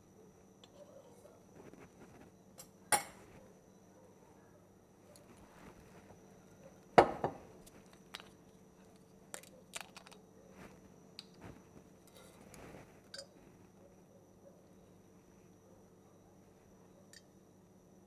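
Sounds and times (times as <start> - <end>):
sharp knock on countertop: 7.0 - 7.4.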